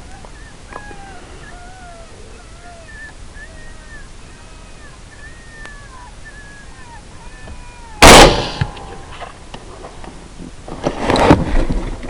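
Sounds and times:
high squealing calls: 0:00.0 - 0:09.1
rifle shot: 0:08.0 - 0:09.0.

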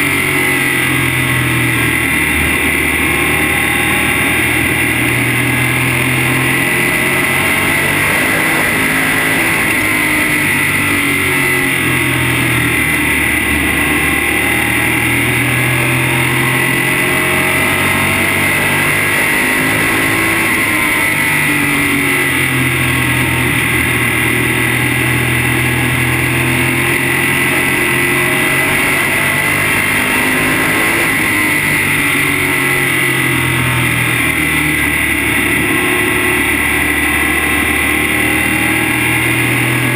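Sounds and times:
race car engine revving: 0:00.0 - 0:39.9
wind and road noise: 0:00.0 - 0:39.9.

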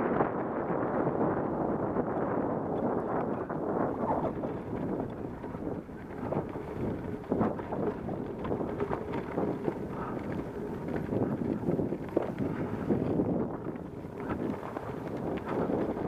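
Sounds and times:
wind rushing over microphone: 0:00.0 - 0:16.0
bike rattling and knocking: 0:02.1 - 0:16.0
tyres crunching on gravel: 0:04.2 - 0:16.0.

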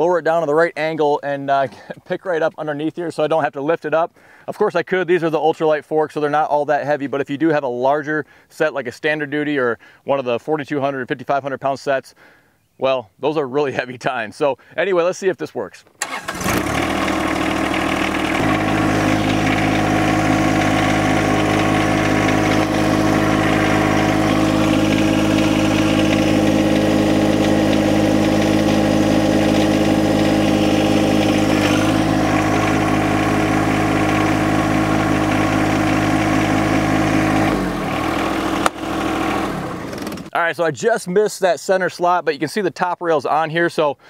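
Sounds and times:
tractor diesel engine running: 0:16.0 - 0:40.3.

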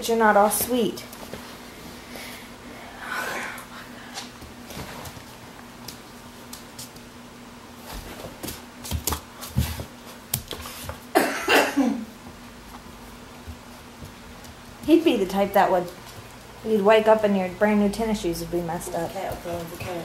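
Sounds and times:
faint steady hum: 0:00.0 - 0:20.0
puppy claws clicking on floor: 0:05.8 - 0:07.1, 0:08.4 - 0:11.0.

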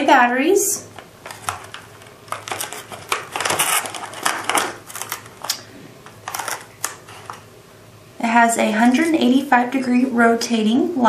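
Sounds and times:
plastic packaging crackling: 0:00.9 - 0:07.5.

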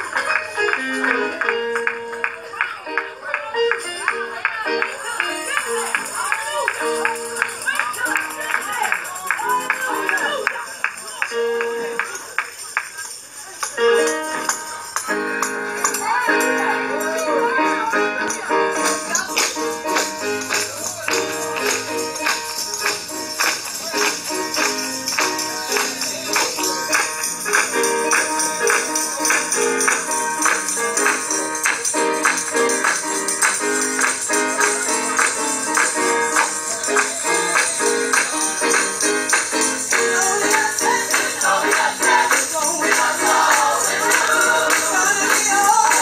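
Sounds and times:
hands clapping beat: 0:00.0 - 0:46.0
tambourine: 0:05.2 - 0:46.0
gospel choir singing: 0:39.9 - 0:46.0.

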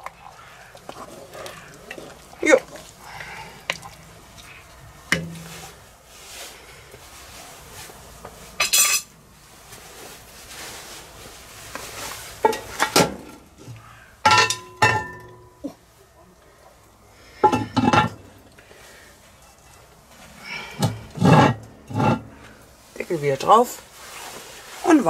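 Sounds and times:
wooden spoon stirring in pot: 0:00.0 - 0:08.5
metal lid clanking: 0:14.3 - 0:15.5.

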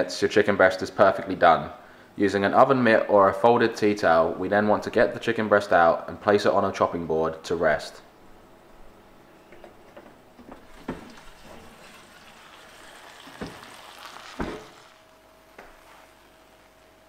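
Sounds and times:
faint steady hum: 0:00.0 - 0:17.0
meat sizzling in a pan: 0:10.7 - 0:16.9.

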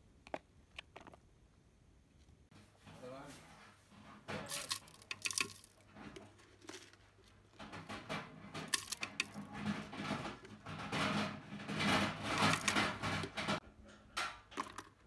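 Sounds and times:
plastic spoon scraping steel jar: 0:08.6 - 0:13.6.

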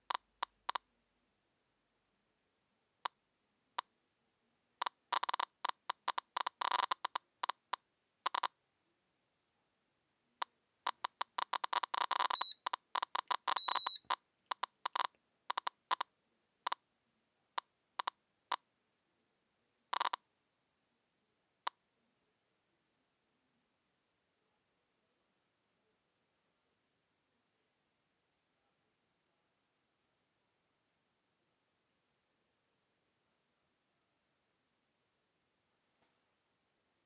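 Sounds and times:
geiger counter clicking: 0:04.8 - 0:08.5, 0:10.9 - 0:16.1, 0:18.0 - 0:18.6, 0:19.9 - 0:20.2.

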